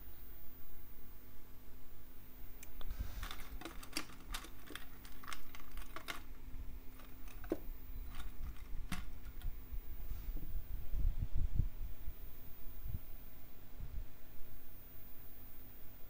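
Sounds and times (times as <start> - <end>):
faint steady hum: 0.0 - 16.0
handling clicks and taps: 2.7 - 6.4, 7.0 - 9.5.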